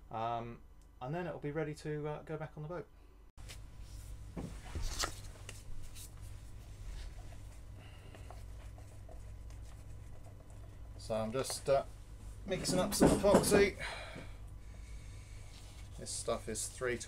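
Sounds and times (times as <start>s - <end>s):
low steady hum: 0.0s - 17.0s
gloves rustling: 15.2s - 17.0s.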